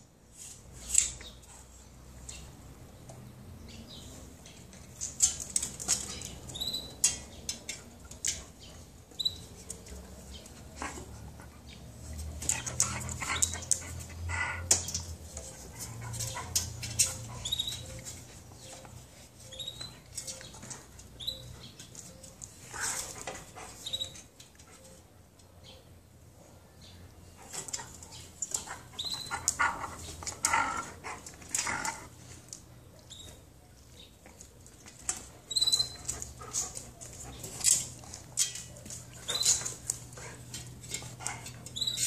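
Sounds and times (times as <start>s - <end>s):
high squeaks: 35.5s - 36.2s.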